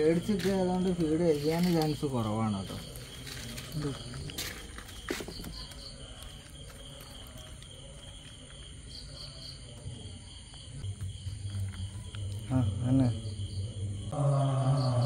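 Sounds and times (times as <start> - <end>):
faint insect chirring: 0.0 - 15.0
low hum: 10.8 - 15.0.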